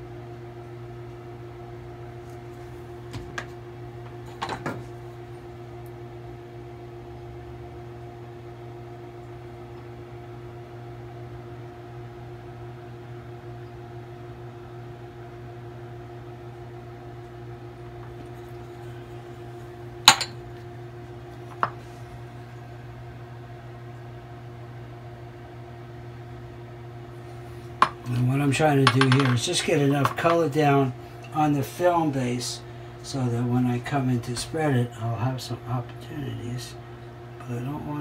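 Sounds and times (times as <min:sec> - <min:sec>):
low electrical hum: 0:00.0 - 0:38.0
glass beaker clinking on table: 0:20.1 - 0:20.4.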